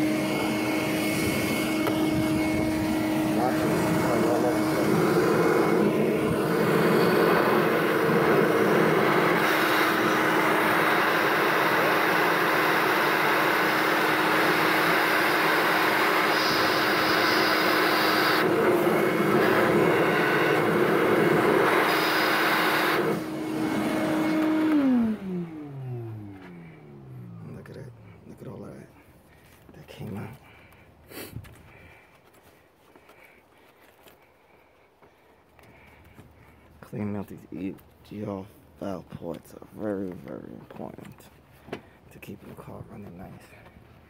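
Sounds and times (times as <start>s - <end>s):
rushing air: 0.0s - 28.2s
shop vacuum motor whine: 0.0s - 29.0s.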